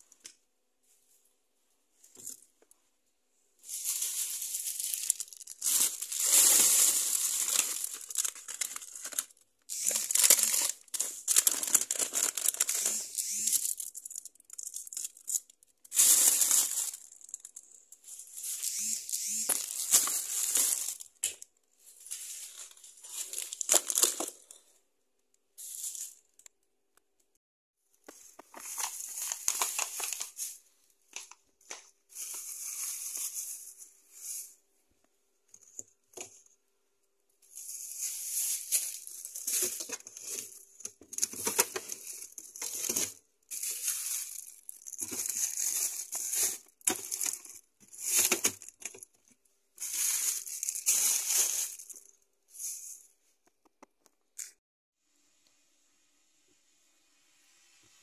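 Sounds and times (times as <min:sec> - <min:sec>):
plastic bags crinkling: 0:03.6 - 0:24.7, 0:28.4 - 0:34.0, 0:37.5 - 0:53.0.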